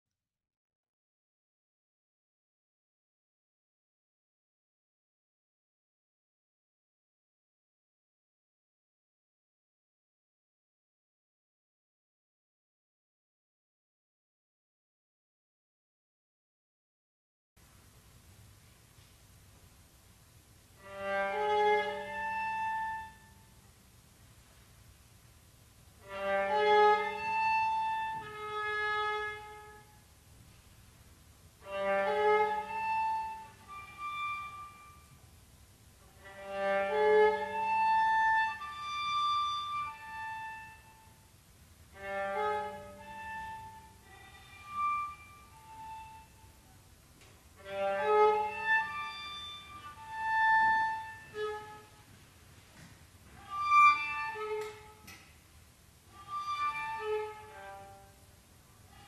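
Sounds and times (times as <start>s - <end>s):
viola: 20.7s - 23.6s, 26.0s - 30.6s, 31.6s - 35.3s, 36.0s - 41.3s, 41.9s - 55.3s, 56.0s - 59.0s
bowed strings chamber music: 20.8s - 23.4s, 26.0s - 29.9s, 31.6s - 35.1s, 36.1s - 41.1s, 41.9s - 46.6s, 47.6s - 52.1s, 53.4s - 55.2s, 56.1s - 58.3s.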